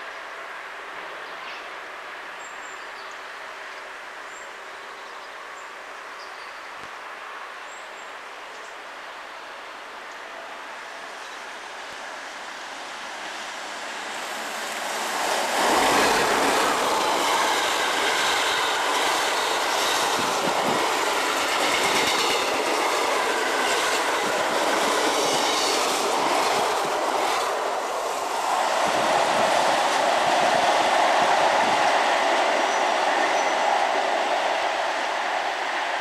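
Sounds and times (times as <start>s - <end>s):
electric train passing: 10.6s - 36.0s.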